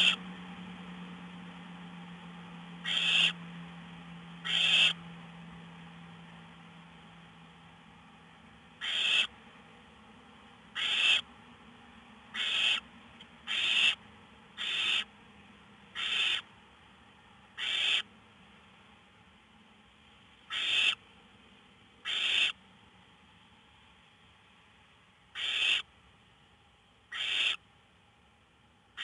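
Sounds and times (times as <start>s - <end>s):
owlets hissing begging calls: 0.0s - 0.2s, 2.8s - 3.4s, 4.4s - 5.0s, 8.8s - 9.3s, 10.7s - 11.2s, 12.3s - 12.9s, 13.5s - 14.0s, 14.6s - 15.1s, 16.0s - 16.5s, 17.6s - 18.1s, 20.5s - 21.0s, 22.0s - 22.6s, 25.4s - 25.9s, 27.1s - 27.6s.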